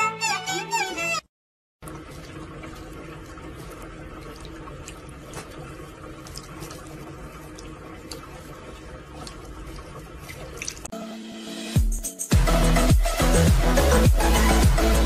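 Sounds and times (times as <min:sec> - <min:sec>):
tap water running into sink: 0:01.8 - 0:10.9
water drips and ticks: 0:01.8 - 0:10.9.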